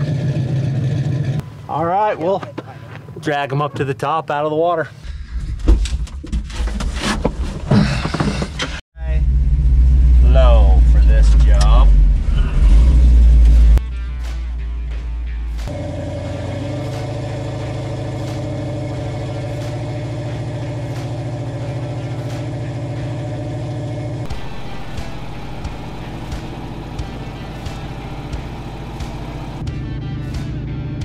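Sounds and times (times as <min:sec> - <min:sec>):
tow truck engine running: 0:15.5 - 0:29.6.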